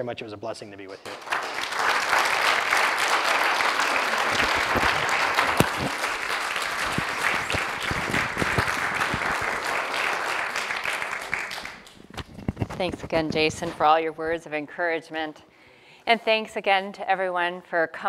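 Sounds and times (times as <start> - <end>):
audience applauding: 1.1 - 12.1.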